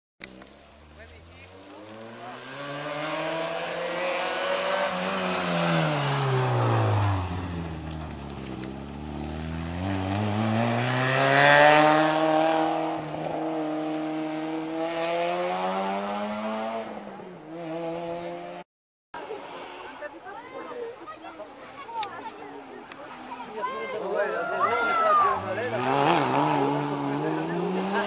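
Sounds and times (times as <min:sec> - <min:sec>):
rally car engine accelerating: 0:01.6 - 0:18.6, 0:25.2 - 0:28.0.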